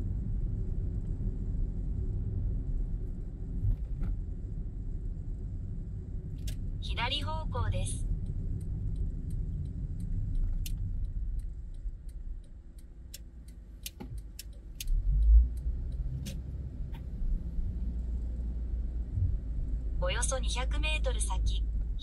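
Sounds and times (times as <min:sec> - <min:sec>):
road and engine rumble: 0:00.0 - 0:22.0
light ticks and rattles: 0:08.0 - 0:17.4.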